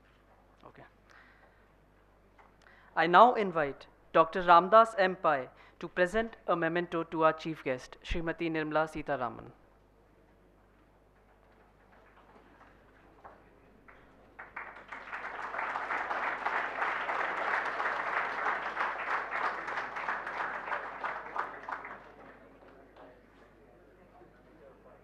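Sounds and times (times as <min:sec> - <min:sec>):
audience applauding: 0:13.8 - 0:23.1.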